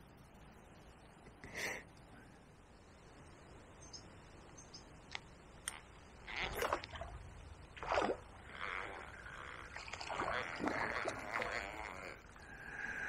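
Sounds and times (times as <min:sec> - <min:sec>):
fish splashing in water: 0:07.8 - 0:12.1.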